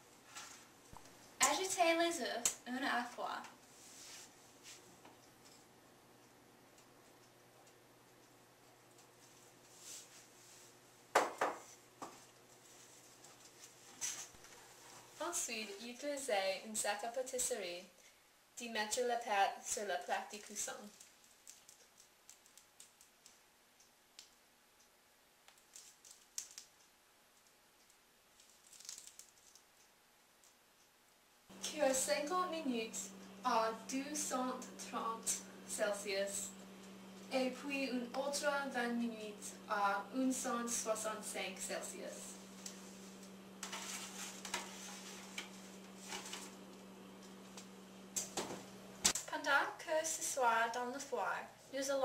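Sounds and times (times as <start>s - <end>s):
soft rustle: 3.6s - 5.0s, 9.2s - 10.8s, 11.7s - 15.3s, 42.5s - 46.6s
steady low hum: 31.5s - 49.3s
baking sheet sliding onto oven rack: 42.8s - 46.6s.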